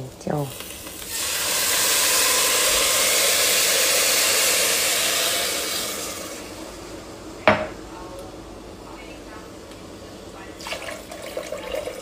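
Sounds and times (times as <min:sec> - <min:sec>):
hot pot hissing and steaming: 0:00.0 - 0:07.4, 0:10.6 - 0:12.0
water pouring: 0:10.6 - 0:12.0.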